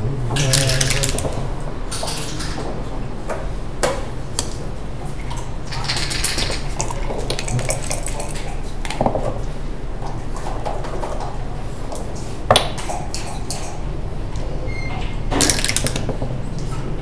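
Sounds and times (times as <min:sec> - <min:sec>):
plastic checkers clacking on board: 0:00.4 - 0:02.7, 0:05.7 - 0:09.4, 0:15.3 - 0:16.4.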